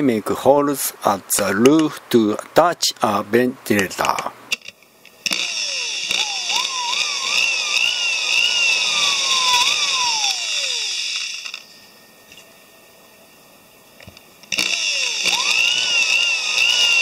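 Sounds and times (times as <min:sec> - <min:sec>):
small electric drill whining: 0:04.5 - 0:12.5, 0:14.0 - 0:17.0.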